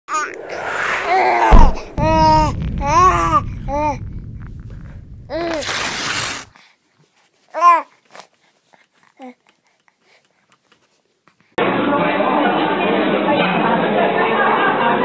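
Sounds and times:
low thud: 0.2s - 5.6s
baby babbling: 1.4s - 4.0s, 7.5s - 8.0s.

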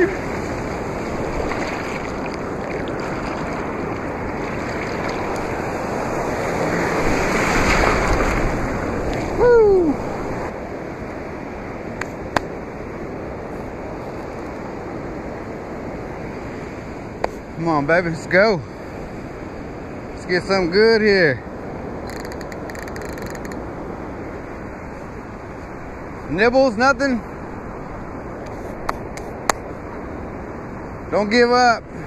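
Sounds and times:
ocean surf breaking: 0.0s - 32.0s.

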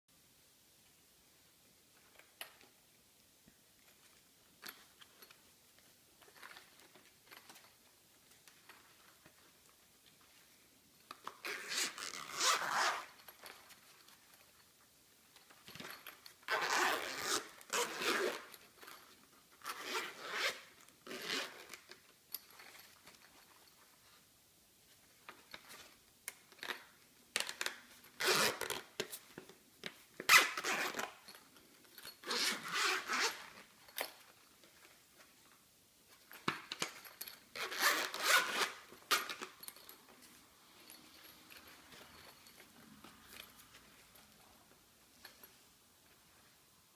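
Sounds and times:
zippers pulled open and shut: 11.2s - 14.0s, 15.6s - 22.8s, 27.4s - 29.2s, 30.2s - 31.4s, 32.0s - 34.0s, 36.4s - 40.0s.

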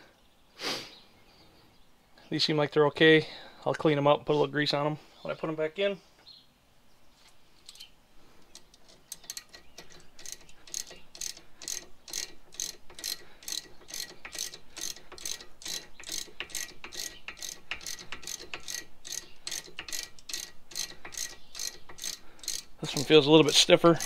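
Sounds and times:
ratchet wrench clicking: 8.5s - 24.0s.

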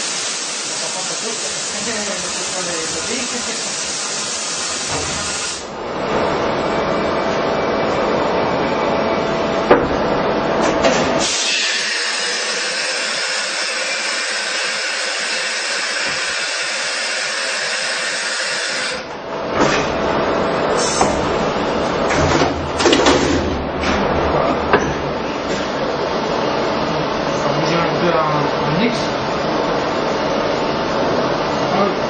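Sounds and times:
machine running noise: 0.0s - 32.0s
machine clunks: 22.1s - 25.7s.

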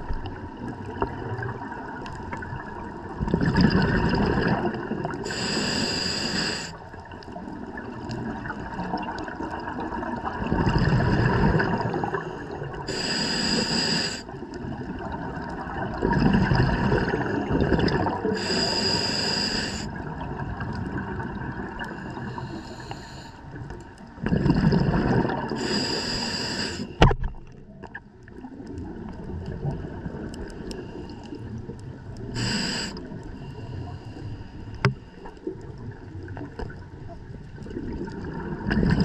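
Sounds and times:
bubbling underwater exhalations: 3.2s - 5.3s, 7.8s - 12.3s, 14.6s - 18.7s, 24.2s - 25.9s, 37.6s - 39.0s
regulator hissing inhale: 5.2s - 6.8s, 12.1s - 14.4s, 18.3s - 20.0s, 21.8s - 23.7s, 25.6s - 27.0s, 32.2s - 35.4s.

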